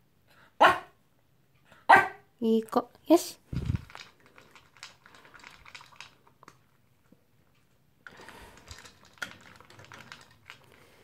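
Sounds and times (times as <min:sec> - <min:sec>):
dog crunching food from bowl: 0:03.5 - 0:06.8, 0:08.0 - 0:11.0.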